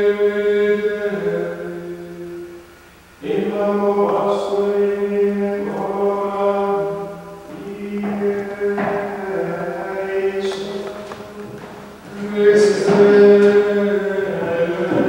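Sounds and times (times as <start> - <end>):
monks chanting in unison: 3.2 - 15.0.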